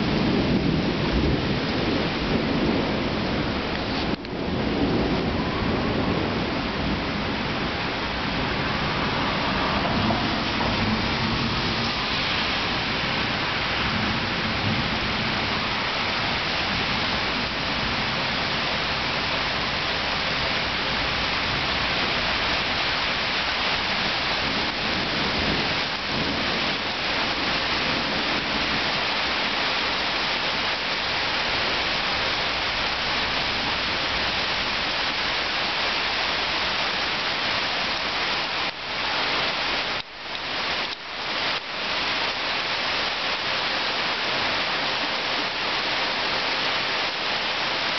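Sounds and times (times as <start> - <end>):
low rumble of thunder: 0.0 - 35.6
steady rain falling: 0.0 - 47.9.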